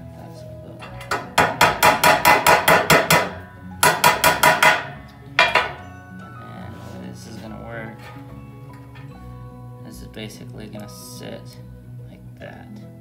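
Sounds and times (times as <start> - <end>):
hammer tapping on steel: 1.0 - 5.8.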